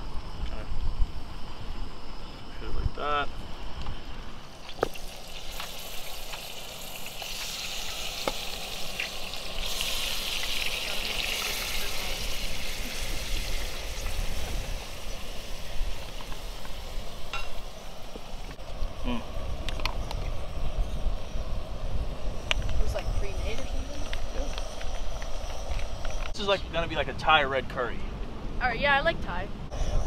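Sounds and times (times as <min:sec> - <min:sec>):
meat sizzling in a hot pot: 0:04.5 - 0:18.6.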